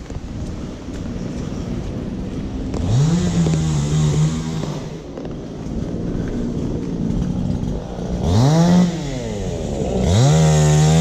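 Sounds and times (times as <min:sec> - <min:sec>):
chainsaw revving: 0:01.2 - 0:05.3, 0:06.4 - 0:11.0.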